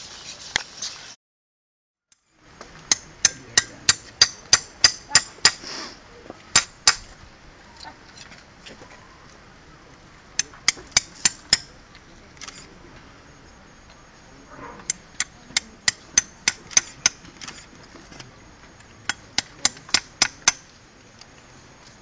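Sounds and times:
hammer striking metal blade: 2.9s - 5.6s, 19.1s - 20.7s.

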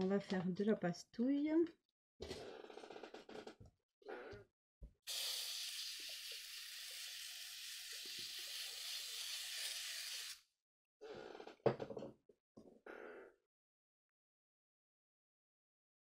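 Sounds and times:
aerosol can spraying hiss: 5.1s - 10.4s.

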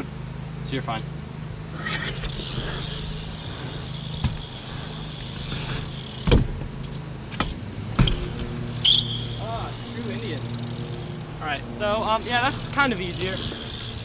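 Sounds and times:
engine drone: 0.0s - 14.0s
bike tyres rolling: 1.6s - 14.0s
bike knocking on ramp: 4.2s - 4.5s, 5.3s - 8.6s.

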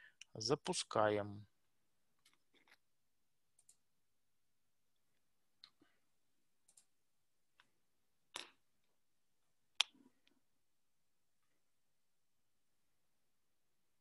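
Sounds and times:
computer mouse clicks: 3.5s - 3.8s, 6.6s - 6.9s.

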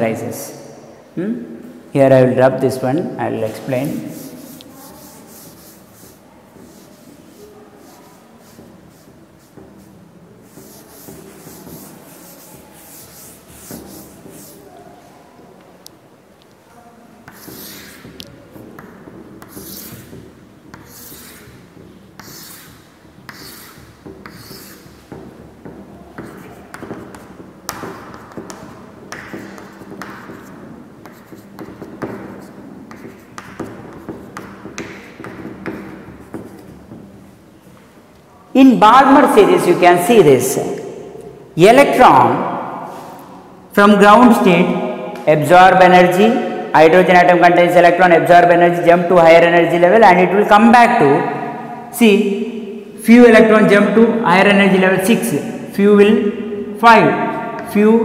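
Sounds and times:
cloth wiping chalk off blackboard: 3.4s - 15.1s, 17.3s - 37.9s, 42.8s - 43.3s.

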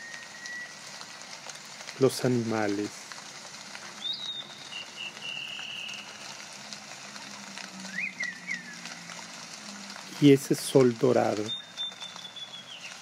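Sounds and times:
whistled bird call: 0.0s - 0.8s, 4.0s - 6.1s, 7.9s - 8.8s, 11.4s - 13.0s
rain and running water: 0.0s - 13.0s
warbling bird call: 4.0s - 6.1s.

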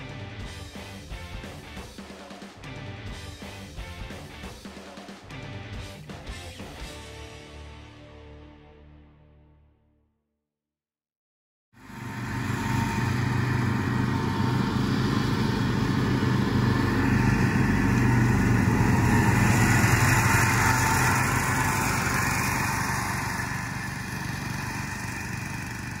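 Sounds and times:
atv engine running: 11.8s - 26.0s
mower engine running: 11.8s - 26.0s.

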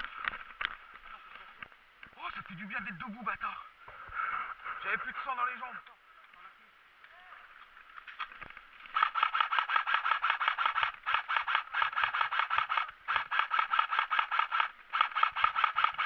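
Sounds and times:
airsoft rifle firing full auto: 8.9s - 16.0s.

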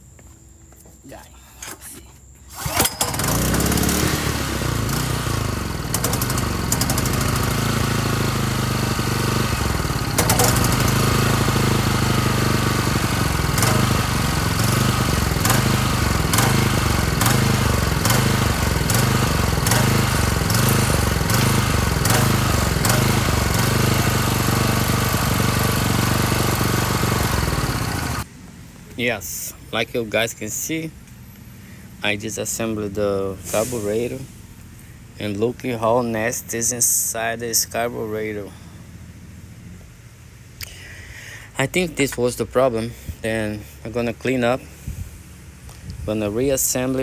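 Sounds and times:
generator engine running and surging: 2.5s - 28.4s.

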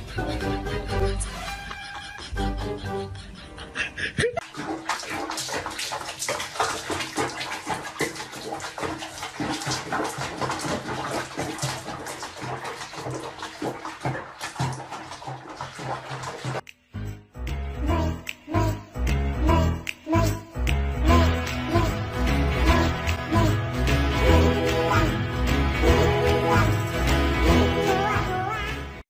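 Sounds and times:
water splashing in a basin: 4.4s - 16.7s, 21.1s - 29.0s.

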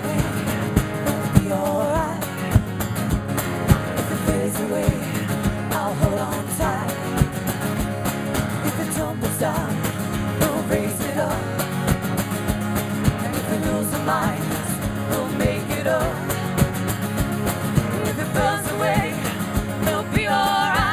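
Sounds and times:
women singing: 0.0s - 2.3s, 4.0s - 7.4s, 8.6s - 11.7s, 13.1s - 16.8s, 17.7s - 20.9s
acoustic guitars strumming: 0.0s - 20.9s
drum beat: 14.0s - 20.9s.

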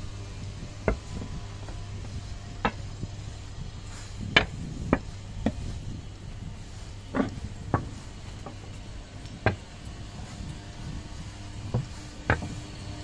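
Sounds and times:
steady low hum: 0.0s - 13.0s
train wheels clunking over rail joints: 0.0s - 13.0s.

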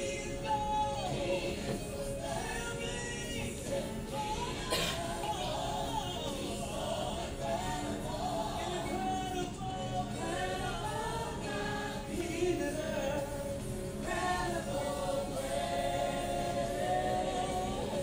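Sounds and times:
gospel choir singing: 0.0s - 18.0s
musical backing: 0.0s - 18.0s.

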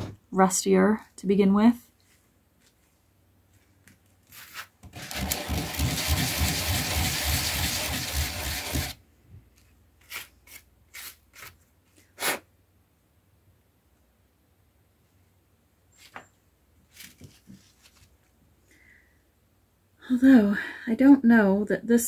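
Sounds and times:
doorknob scrubbed on sandpaper: 5.0s - 9.0s.

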